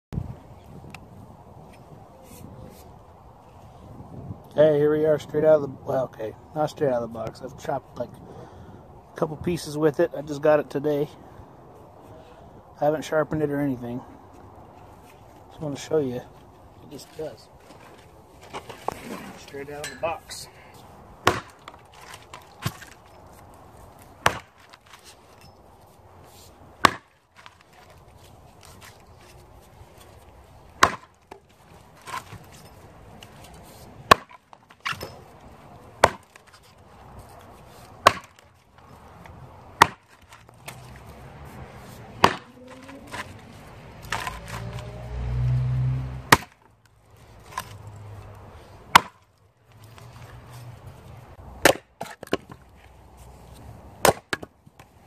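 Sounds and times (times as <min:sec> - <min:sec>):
axe chopping into log: 0:21.2 - 0:23.0, 0:24.2 - 0:25.0, 0:26.8 - 0:27.6, 0:30.8 - 0:31.4, 0:34.1 - 0:35.2, 0:36.0 - 0:36.6, 0:38.0 - 0:38.5, 0:39.8 - 0:40.8, 0:42.2 - 0:43.3, 0:44.0 - 0:44.9, 0:46.3 - 0:46.6, 0:48.9 - 0:49.3, 0:51.6 - 0:52.6, 0:54.0 - 0:54.5.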